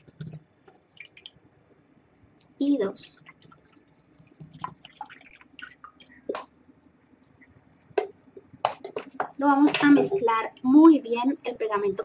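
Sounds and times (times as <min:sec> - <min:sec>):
water trickling and dripping: 0:00.0 - 0:07.6.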